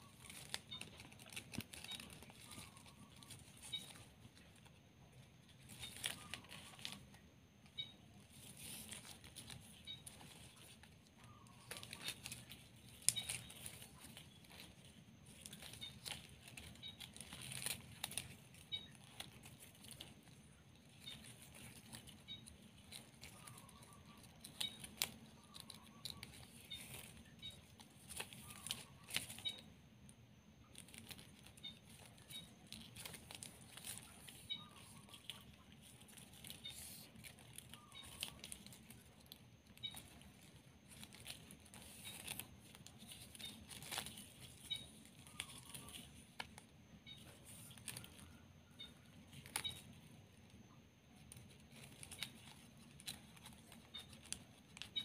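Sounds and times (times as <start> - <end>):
plastic ribbon crinkling: 0.0 - 55.0.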